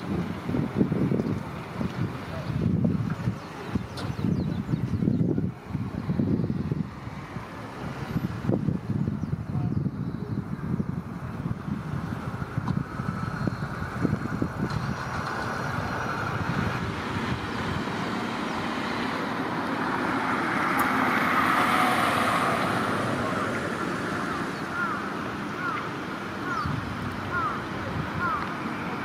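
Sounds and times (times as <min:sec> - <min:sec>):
wind rumble: 0:00.0 - 0:29.0
vehicle passing: 0:12.8 - 0:29.0.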